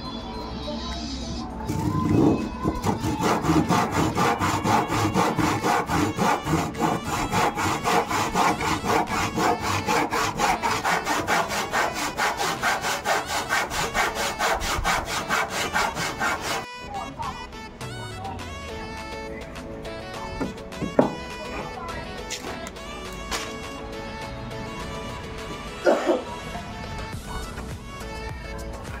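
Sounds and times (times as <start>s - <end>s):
handsaw cutting wood: 1.7s - 16.7s.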